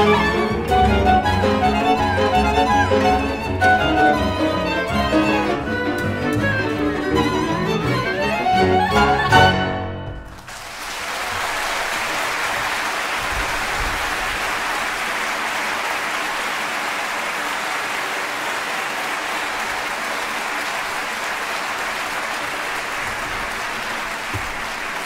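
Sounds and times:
audience applauding: 10.3 - 25.0.

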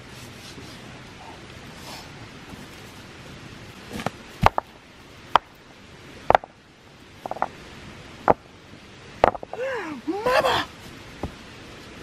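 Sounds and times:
stones knocking together: 3.9 - 4.7, 6.3 - 6.5, 7.2 - 7.5, 9.2 - 9.6.

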